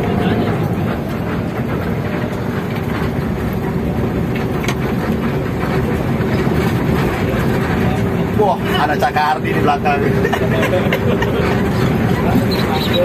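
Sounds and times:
bus diesel engine rumble: 0.0s - 13.0s.

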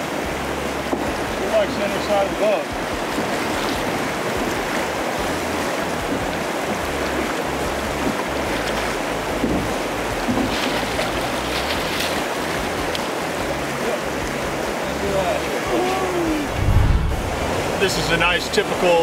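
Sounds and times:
river current rushing: 0.0s - 19.0s
wind rumbling on microphone: 16.3s - 17.9s.

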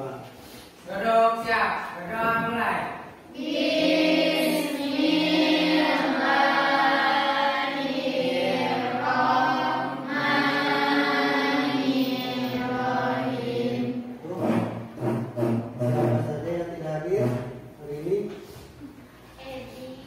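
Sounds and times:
students chanting prayer in unison: 3.3s - 17.5s.

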